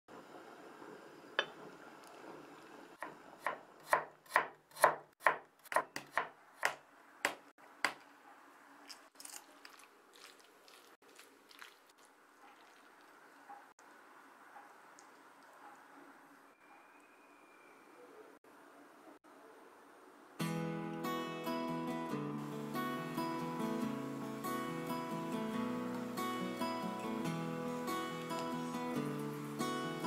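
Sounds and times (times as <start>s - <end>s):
knife chopping on wooden board: 3.0s - 8.0s.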